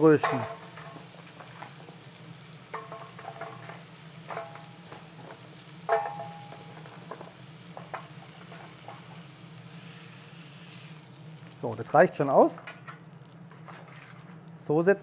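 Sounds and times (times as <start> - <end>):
meat sizzling in a pan: 0.0 - 14.3
tongs clinking against pan: 2.7 - 3.6, 5.9 - 6.9.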